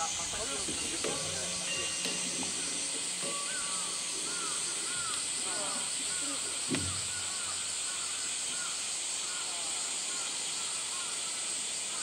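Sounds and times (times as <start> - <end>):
cicada drone: 0.0 - 12.0
single knock: 6.7 - 7.2.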